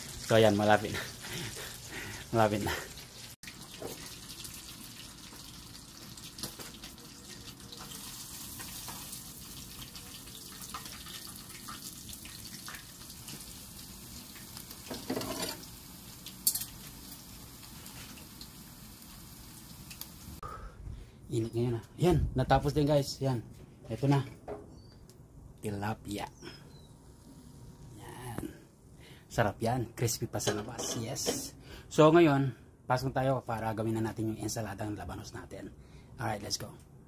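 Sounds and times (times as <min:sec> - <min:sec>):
hot oil sizzling in a pan: 0:00.0 - 0:20.4
metal spatula scraping a pan: 0:14.9 - 0:15.6, 0:30.5 - 0:31.5.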